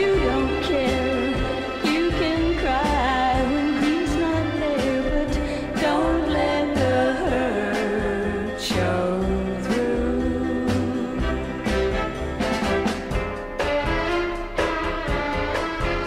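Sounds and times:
woman singing: 0.0 - 12.0
pop band with bass and drums: 0.0 - 16.0.

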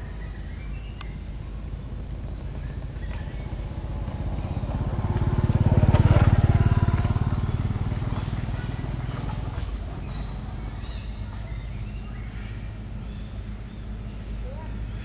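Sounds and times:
vehicle engine passing by: 1.6 - 15.0.

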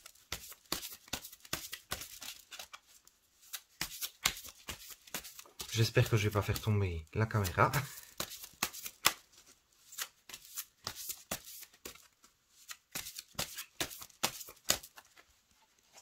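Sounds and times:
cards being shuffled: 0.0 - 15.3.

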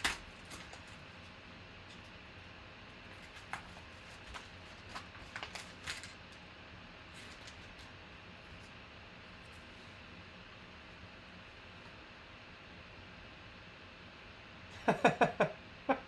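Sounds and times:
paper envelope tearing: 3.1 - 6.2.

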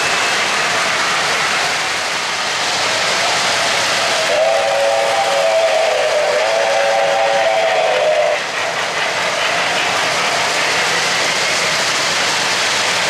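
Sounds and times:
model trains running on track: 0.0 - 13.0
steam whistle chord: 4.3 - 8.4.

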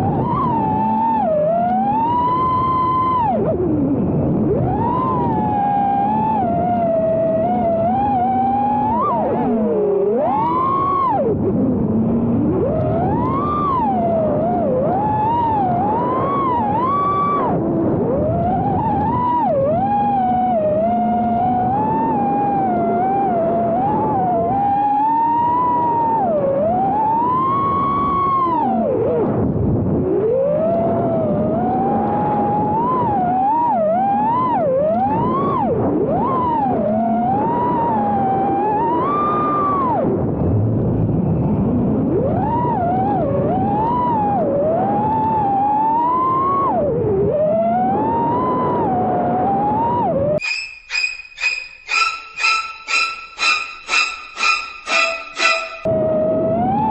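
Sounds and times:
quadcopter motors whining: 50.4 - 55.9
rushing noise: 50.4 - 55.9.

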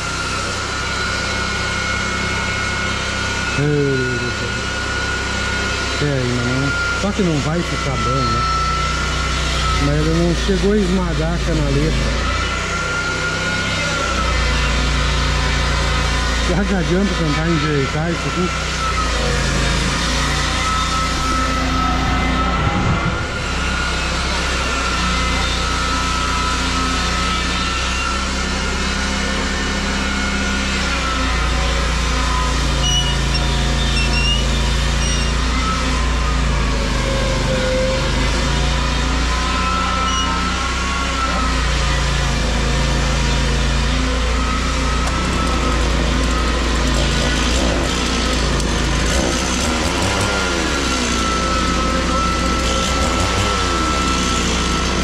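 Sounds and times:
engine running: 0.0 - 55.0.

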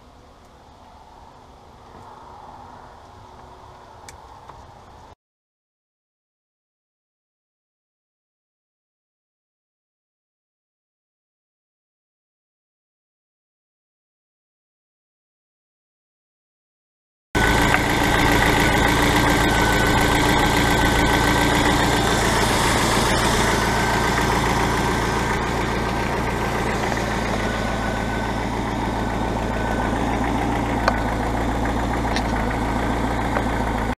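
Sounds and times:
car engine idling: 17.4 - 34.0.

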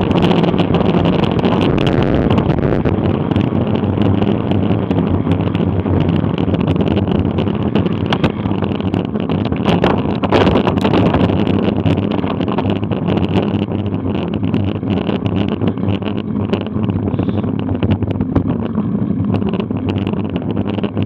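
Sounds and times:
tyre rumble on road: 0.0 - 21.0
wind rushing over microphone: 0.0 - 21.0
bicycle clicks and rattles: 2.3 - 21.0.

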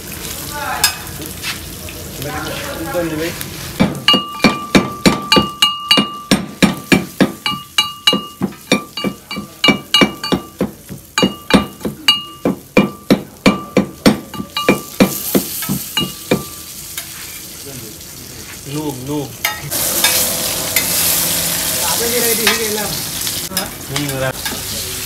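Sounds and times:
mortar and pestle pounding: 3.8 - 16.5.

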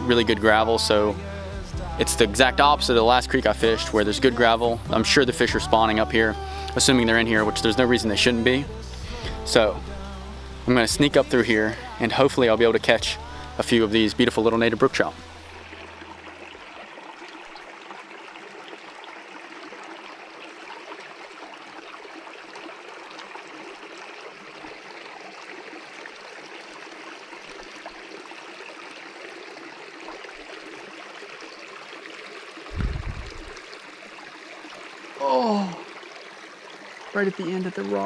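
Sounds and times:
creek running over rocks: 0.0 - 38.0
low thud: 32.7 - 33.6.

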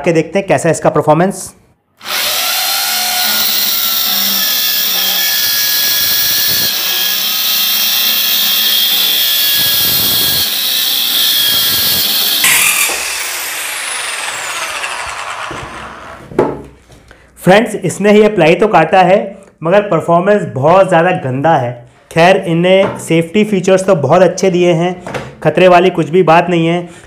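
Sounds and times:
drill-driven saw cutting plywood: 2.0 - 16.2
saw blade spinning down whine: 2.3 - 16.2
knock: 15.5 - 16.7.

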